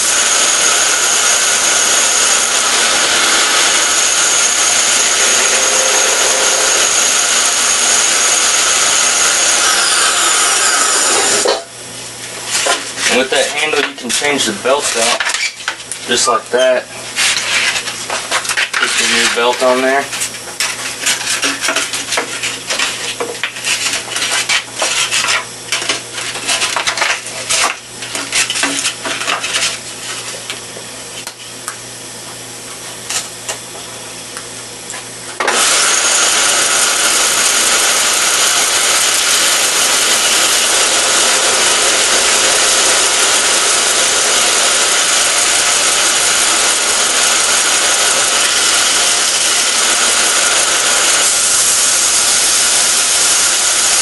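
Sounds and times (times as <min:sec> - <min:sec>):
belt grinder whirring: 0:00.0 - 0:11.7, 0:35.4 - 0:54.0.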